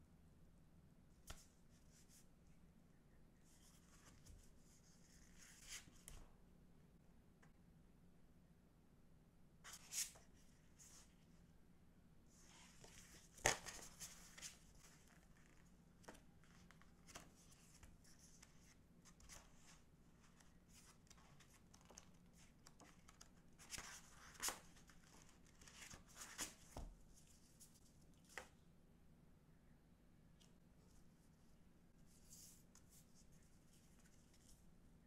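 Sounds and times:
book pages turning: 12.6 - 27.4
cards tapping and rustling: 12.8 - 18.0.

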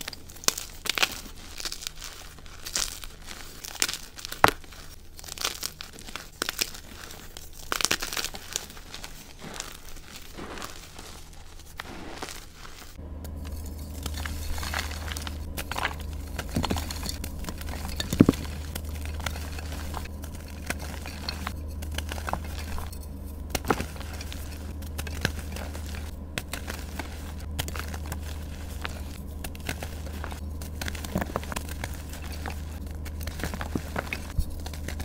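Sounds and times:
chalk crunching by hand: 0.0 - 35.0
low hum: 12.9 - 35.0.

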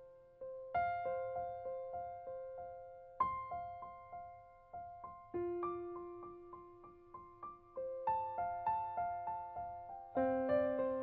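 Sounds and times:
gentle piano music: 0.0 - 11.0.

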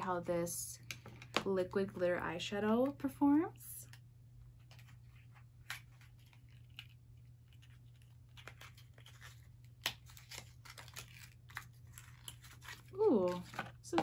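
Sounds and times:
low steady hum: 0.0 - 14.0
package tearing and crinkling: 5.6 - 13.9.

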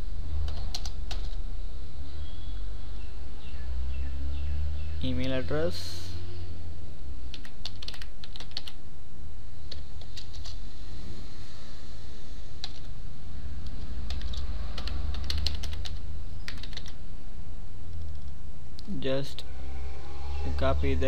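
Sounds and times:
steady low hum: 0.0 - 21.0
computer keyboard typing: 0.4 - 1.4, 7.3 - 8.8, 9.7 - 10.6, 12.6 - 12.9, 13.6 - 17.0, 17.9 - 18.4.

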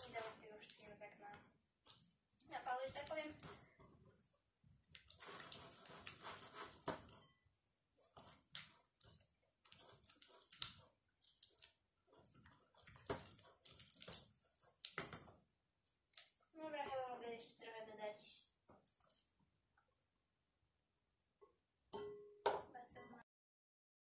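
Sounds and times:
slime squelching: 0.0 - 17.1, 18.7 - 20.0.

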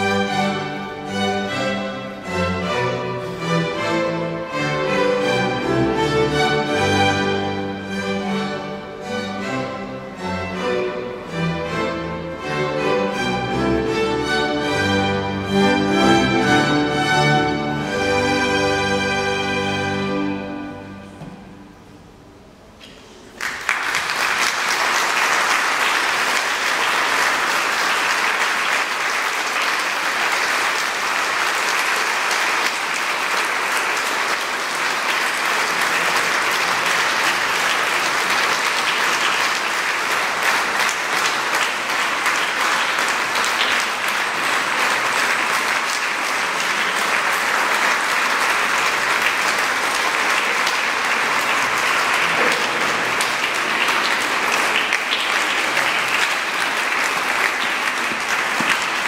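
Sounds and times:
music: 0.0 - 22.5
audience applauding: 23.2 - 59.0.

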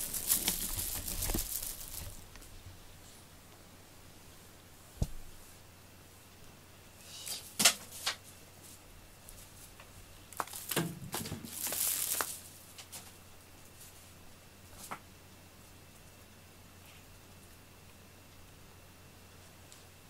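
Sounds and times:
rustling with clicks: 0.0 - 2.6, 9.3 - 13.2.

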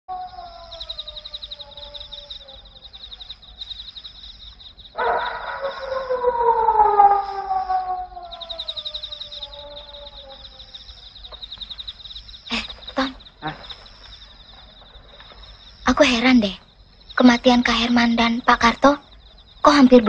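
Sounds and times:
falling wailing tones: 0.1 - 3.3, 5.0 - 11.4
crickets chirping: 0.1 - 20.0.

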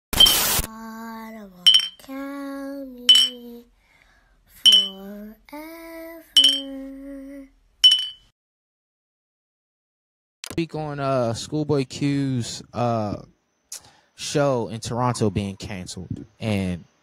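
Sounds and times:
bright bell-like ding: 1.7 - 2.0, 3.1 - 3.4, 4.7 - 5.0, 6.4 - 6.7, 7.8 - 8.3.

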